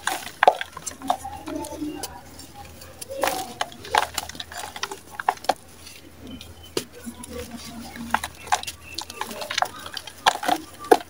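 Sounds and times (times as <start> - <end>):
sand cement crumbling: 0.0 - 11.0.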